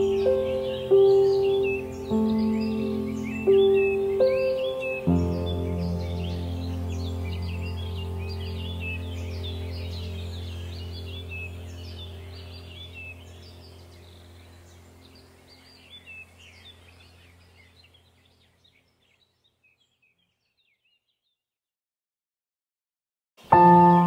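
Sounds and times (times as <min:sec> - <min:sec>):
low drone: 0:00.0 - 0:17.6
birdsong chirping: 0:00.0 - 0:21.4.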